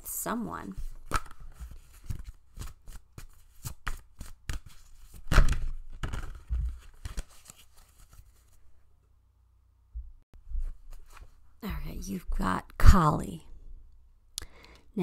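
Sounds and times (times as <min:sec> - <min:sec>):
cards shuffling and slapping: 0:00.7 - 0:08.6.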